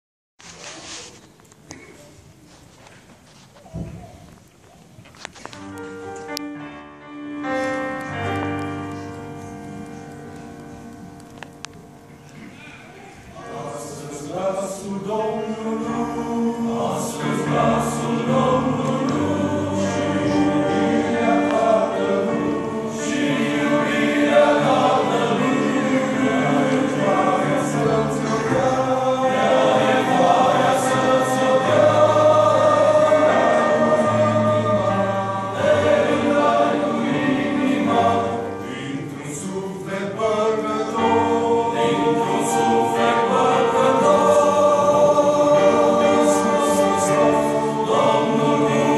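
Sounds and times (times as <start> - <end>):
choir singing a hymn: 13.3 - 48.9.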